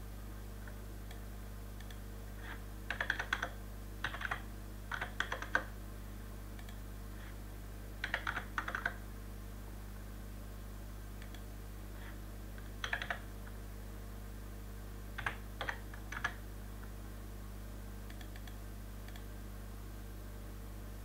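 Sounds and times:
low electrical hum: 0:00.0 - 0:21.0
keyboard typing: 0:01.8 - 0:05.7, 0:08.0 - 0:09.0, 0:12.8 - 0:13.3, 0:15.2 - 0:16.4.

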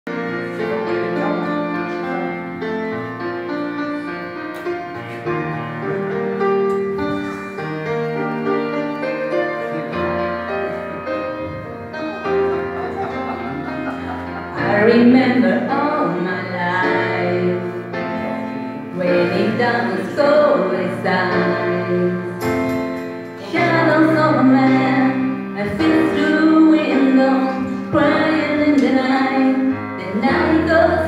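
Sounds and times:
slow piano ballad: 0:00.1 - 0:31.0.

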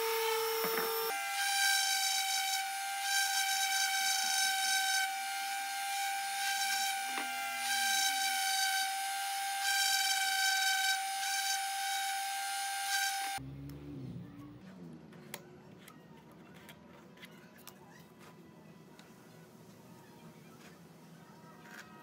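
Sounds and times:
orbital sander whine: 0:00.0 - 0:13.4.

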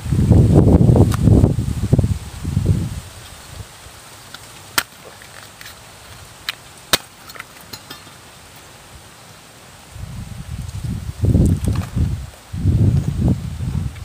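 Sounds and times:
sharp cracks: 0:04.2 - 0:08.2
machete cutting palm heart: 0:04.3 - 0:07.8.

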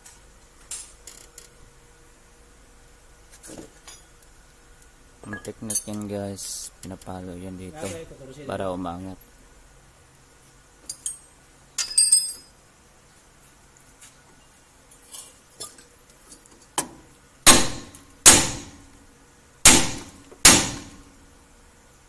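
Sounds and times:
metallic clink of a tool: 0:05.2 - 0:06.0.

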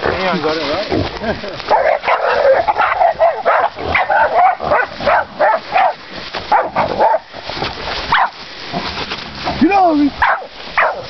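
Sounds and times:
dogs barking and yelping: 0:01.6 - 0:07.4, 0:08.1 - 0:08.4, 0:10.2 - 0:11.0.

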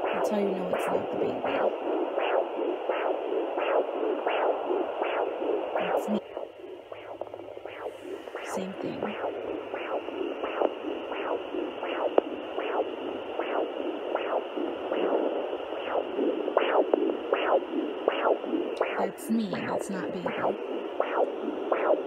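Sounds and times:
steady hiss: 0:01.8 - 0:18.8.

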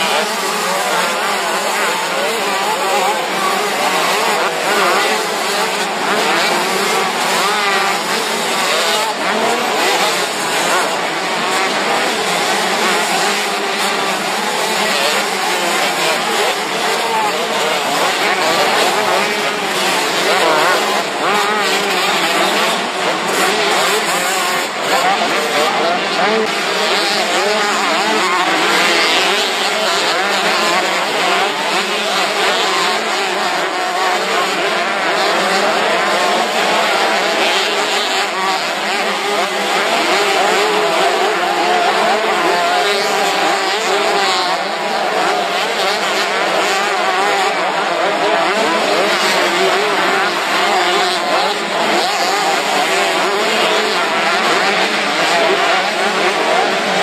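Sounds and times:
motorcycle engines revving: 0:00.0 - 0:57.0.

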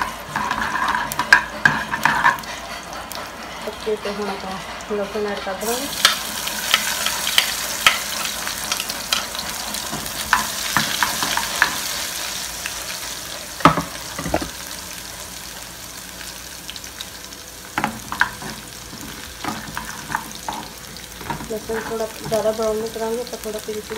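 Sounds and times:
garlic sizzling in hot oil: 0:00.0 - 0:23.9
spoon stirring and clicking on pan: 0:17.8 - 0:22.6.

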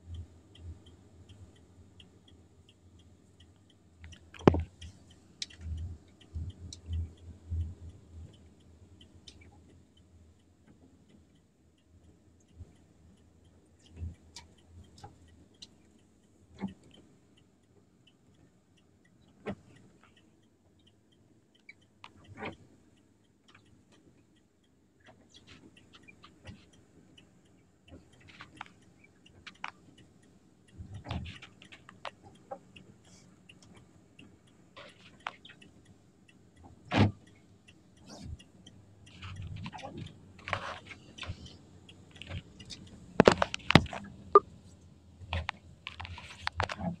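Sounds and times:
clicks and rattles in vehicle cabin: 0:36.9 - 0:37.4, 0:42.2 - 0:44.2, 0:45.3 - 0:47.0.

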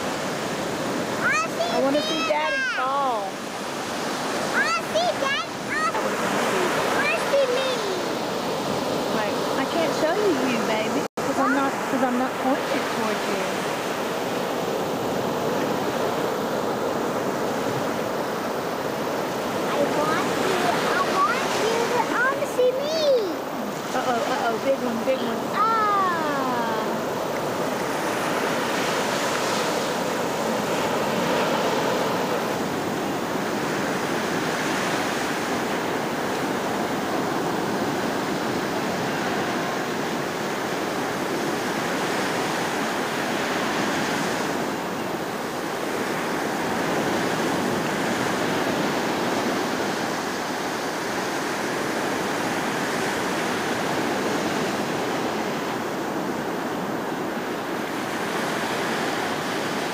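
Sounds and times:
ocean surf breaking: 0:00.0 - 0:59.9.

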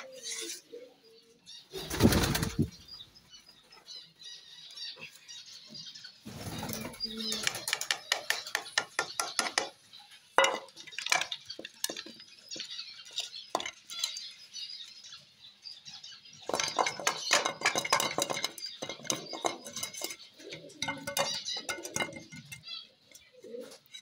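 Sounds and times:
dishes clinking on concrete floor: 0:10.4 - 0:14.3, 0:16.4 - 0:24.0.

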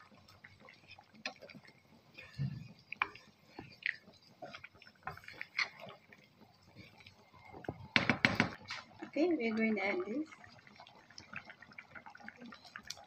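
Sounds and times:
spatula stirring thick curry: 0:00.0 - 0:08.0.

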